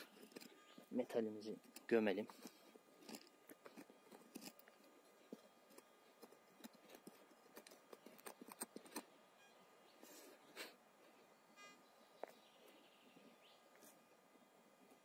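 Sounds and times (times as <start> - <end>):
soil and stones crunching: 0.0 - 9.2.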